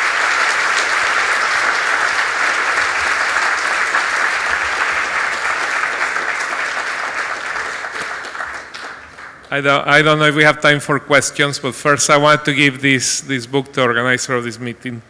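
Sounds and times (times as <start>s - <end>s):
audience applauding: 0.0s - 9.8s.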